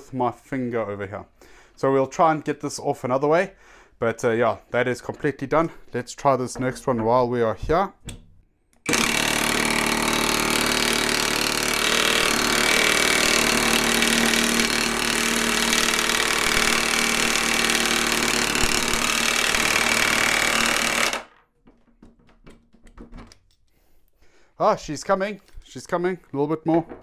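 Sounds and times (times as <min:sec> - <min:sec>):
impact wrench hammering: 0:08.9 - 0:21.2.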